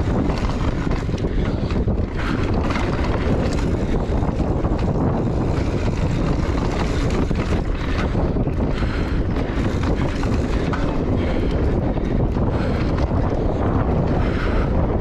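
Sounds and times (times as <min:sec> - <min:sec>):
bike clattering over bumps: 0:00.0 - 0:15.0
wind buffeting microphone: 0:00.0 - 0:15.0.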